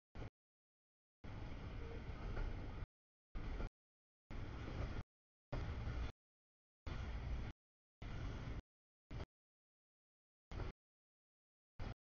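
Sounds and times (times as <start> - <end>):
freight train rolling: 1.2 - 3.7, 4.3 - 5.0, 5.6 - 6.1.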